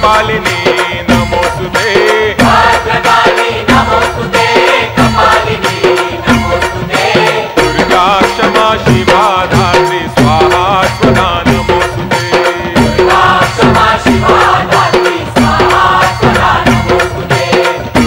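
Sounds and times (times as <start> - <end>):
devotional chant melody: 0.0 - 18.0
steady percussion beat: 0.0 - 18.0.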